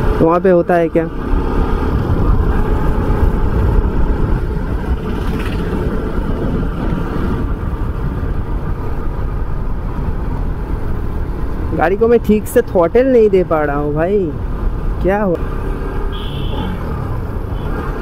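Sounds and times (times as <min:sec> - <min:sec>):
wind rumble on microphone: 0:00.0 - 0:15.5
motorcycle engine running: 0:00.9 - 0:11.8.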